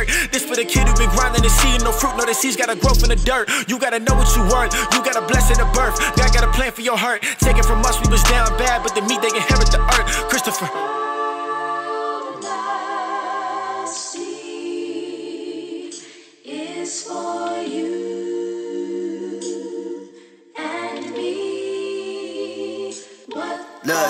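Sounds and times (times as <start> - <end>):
layered sung vocals without beat: 0.0 - 24.0.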